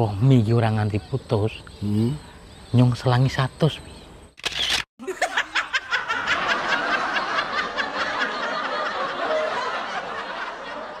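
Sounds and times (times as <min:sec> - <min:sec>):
people laughing: 0:05.0 - 0:11.0.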